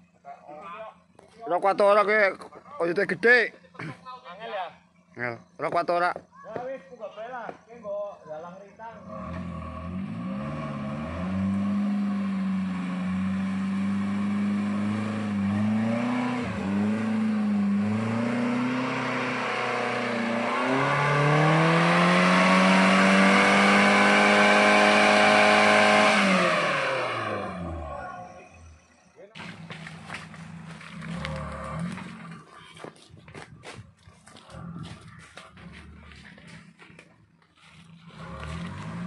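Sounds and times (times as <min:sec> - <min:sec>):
off-road engine revving: 0:08.5 - 0:37.0, 0:37.6 - 0:39.0.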